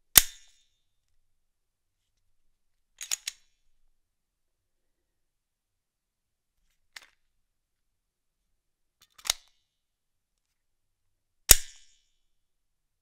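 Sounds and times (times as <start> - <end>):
pistol mechanical clicks: 3.0 - 3.5, 9.0 - 9.6, 11.5 - 11.9.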